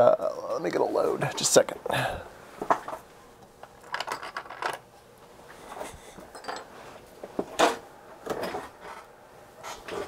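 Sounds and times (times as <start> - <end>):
metallic clinks and clatter: 6.3 - 6.7.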